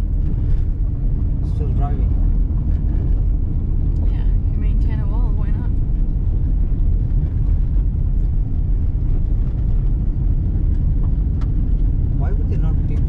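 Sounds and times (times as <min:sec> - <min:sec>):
car rumbling on gravel road: 0:00.0 - 0:13.0.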